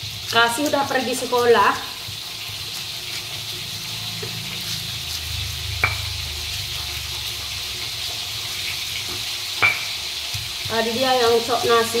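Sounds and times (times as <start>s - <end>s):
fish frying in hot oil: 0.0s - 12.0s
pestle grinding in stone mortar: 2.0s - 10.7s
pestle knock: 5.8s - 6.1s, 9.6s - 10.0s.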